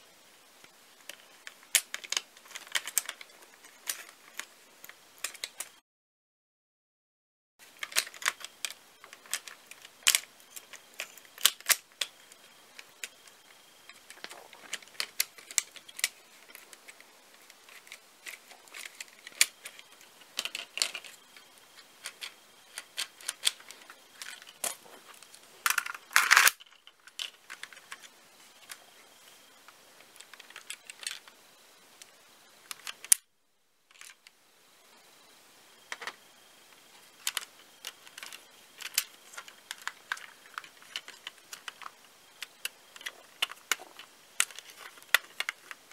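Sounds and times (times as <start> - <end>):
plastic parts clicking and clattering: 0.6 - 5.8, 7.6 - 33.3, 33.9 - 34.3, 35.9 - 45.9.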